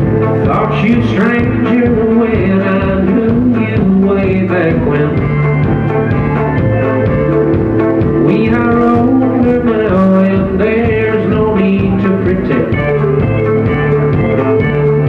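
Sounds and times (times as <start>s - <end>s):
country band playing live: 0.0s - 15.0s
pedal steel sliding notes: 5.0s - 10.2s.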